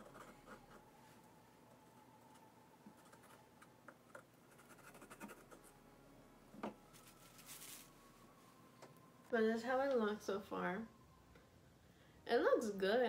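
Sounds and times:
marker scratching on pumpkin: 0:04.5 - 0:05.7.

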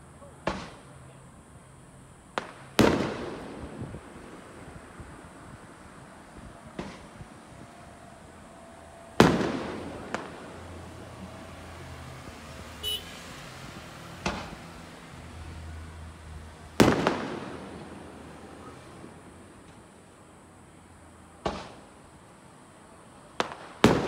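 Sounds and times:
firework booms: 0:00.4 - 0:00.9, 0:02.3 - 0:11.4, 0:14.2 - 0:14.7, 0:16.8 - 0:20.0, 0:21.4 - 0:22.0, 0:23.4 - 0:24.0
smaller firework bangs: 0:00.4 - 0:01.0, 0:02.3 - 0:20.4, 0:21.3 - 0:22.4, 0:23.2 - 0:24.0
firework crackle: 0:00.4 - 0:24.0.

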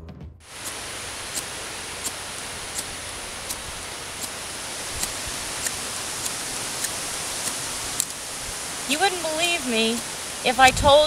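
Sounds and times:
ferro rod scraping: 0:00.5 - 0:11.0
wind hiss: 0:00.5 - 0:11.0.

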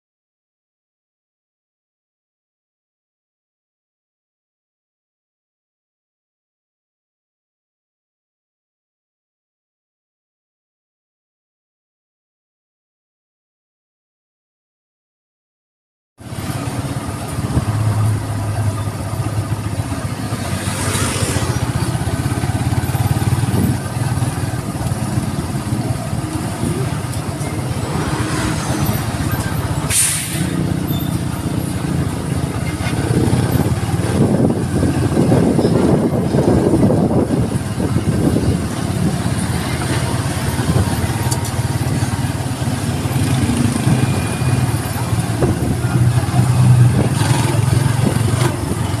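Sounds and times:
road noise: 0:16.2 - 0:49.0
vehicle engine running: 0:16.2 - 0:49.0.

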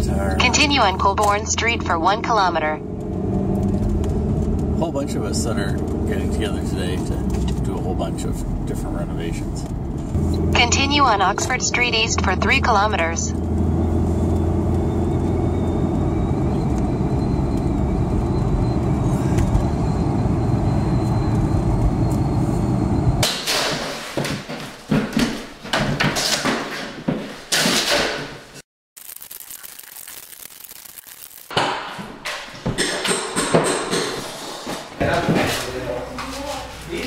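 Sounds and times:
car cabin road rumble: 0:02.8 - 0:20.1.

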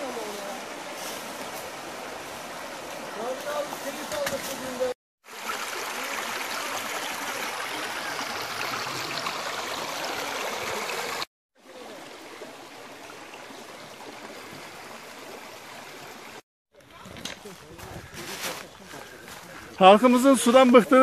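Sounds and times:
stream rushing over rocks: 0:00.0 - 0:16.4.

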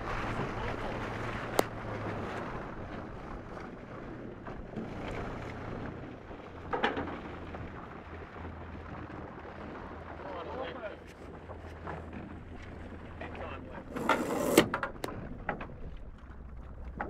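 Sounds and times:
wind buffeting microphone: 0:00.0 - 0:10.1
water rushing along hulls: 0:00.0 - 0:17.0.

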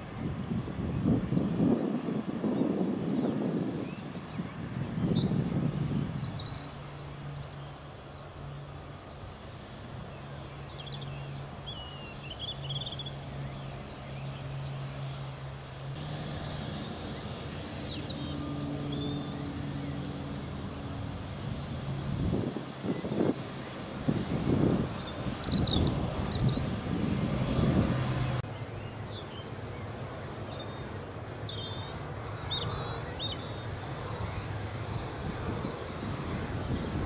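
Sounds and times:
jet engine rumble: 0:00.0 - 0:37.0
small birds chirping: 0:03.2 - 0:20.2, 0:22.8 - 0:36.0
steady low hum: 0:15.9 - 0:22.7.

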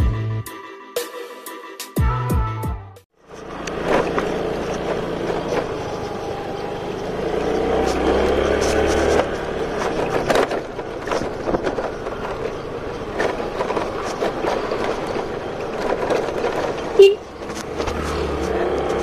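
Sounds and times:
scooter parts rattling: 0:03.2 - 0:19.0
short loud beep: 0:17.0 - 0:17.2.

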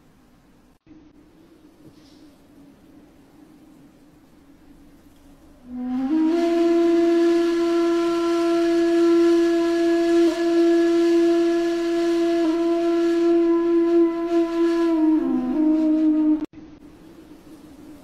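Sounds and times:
breathy flute note: 0:05.6 - 0:16.5.

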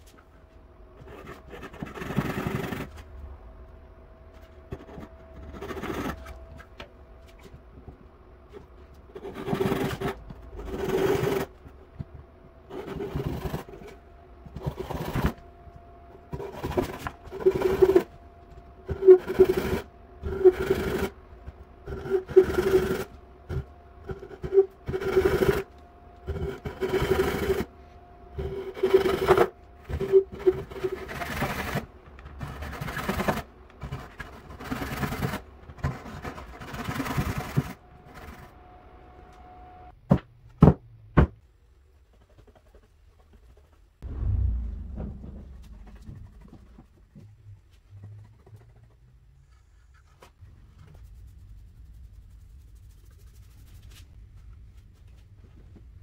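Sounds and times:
sharp knocks: 0:44.0 - 0:46.9.

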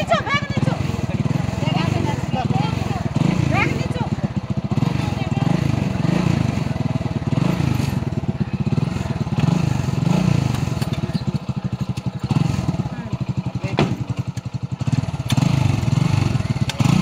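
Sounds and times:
people talking: 0:00.0 - 0:06.7
motorcycle engine idling: 0:00.0 - 0:17.0.

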